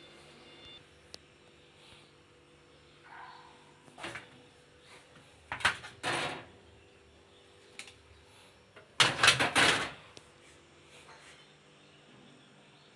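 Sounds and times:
plastic and glass scraping and clattering: 5.5s - 6.5s, 9.0s - 10.0s.

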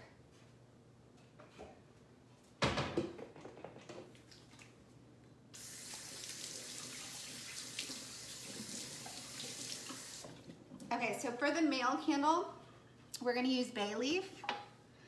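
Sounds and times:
water running into sink: 5.6s - 10.5s.

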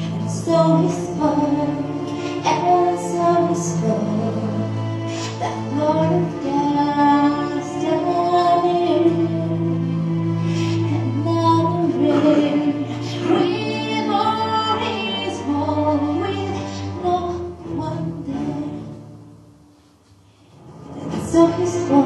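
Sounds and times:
woman singing into microphone: 0.0s - 9.8s, 10.9s - 18.8s, 21.0s - 22.0s
low sustained backing music: 0.0s - 22.0s.

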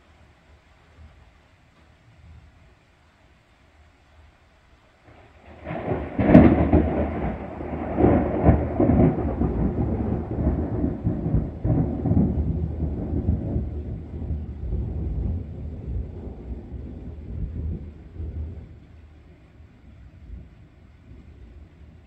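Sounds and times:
thunder clap and cracks: 5.1s - 18.7s
rolling thunder rumble: 5.1s - 22.0s.

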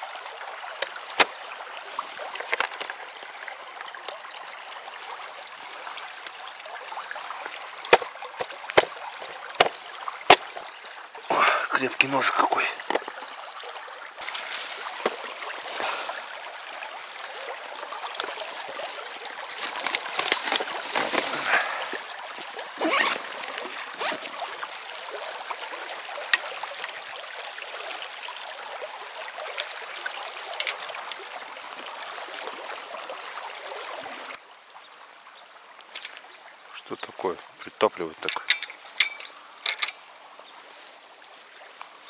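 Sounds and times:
stream rushing over stones: 0.0s - 42.0s
knocks and splashes: 0.8s - 3.0s, 7.4s - 10.7s, 11.4s - 13.2s, 14.2s - 16.3s, 17.9s - 24.6s.

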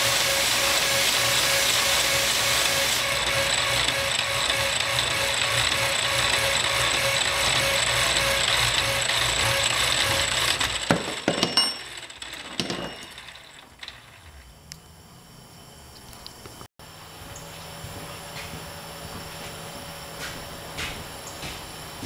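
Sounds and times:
power hacksaw rasping: 0.0s - 14.4s
sharp metallic knocks: 10.7s - 13.6s.

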